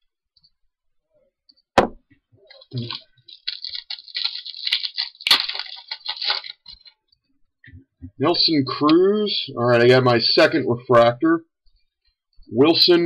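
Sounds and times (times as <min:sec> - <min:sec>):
sharp knock: 0:01.8 - 0:02.0
foil wrapper crinkling and tearing: 0:02.5 - 0:07.0.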